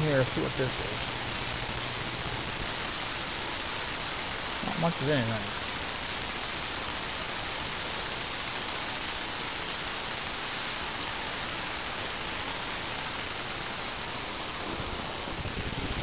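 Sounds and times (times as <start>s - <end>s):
radio static hiss: 0.0s - 16.0s.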